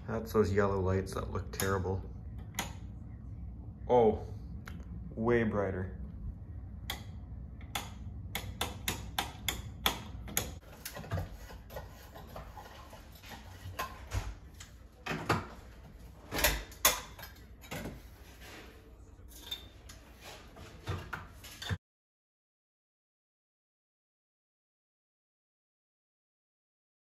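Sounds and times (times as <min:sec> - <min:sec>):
clicks and knocks handling ceiling light: 0:06.9 - 0:18.7.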